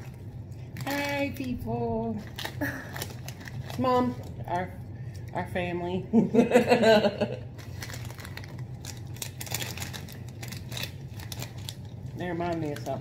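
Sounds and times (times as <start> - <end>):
chip bag crinkling: 0.0 - 4.7, 7.4 - 13.0.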